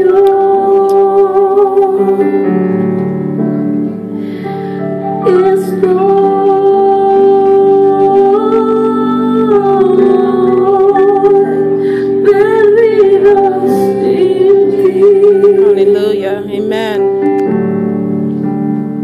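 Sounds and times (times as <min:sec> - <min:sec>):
sustained keyboard chords: 0:00.0 - 0:19.0
woman singing long notes: 0:05.2 - 0:17.1.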